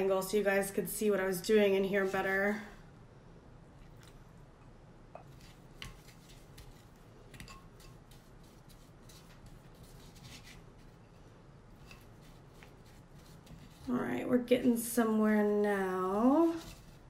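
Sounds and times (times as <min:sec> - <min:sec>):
stirrer scraping paste in wooden bowl: 0:05.2 - 0:14.3, 0:16.2 - 0:17.0.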